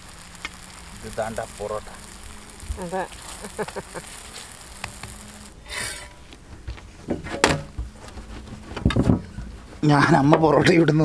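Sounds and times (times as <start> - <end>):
spatula scraping griddle: 2.8 - 6.3.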